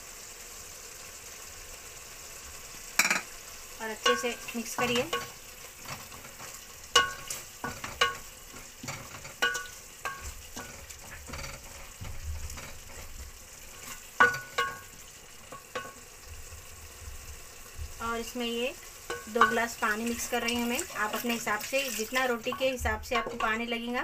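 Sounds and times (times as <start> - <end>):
low sizzle of frying: 0.0 - 24.0
wooden spoon knocking on pot: 4.0 - 13.1, 14.2 - 16.1, 19.1 - 20.2, 22.4 - 23.8.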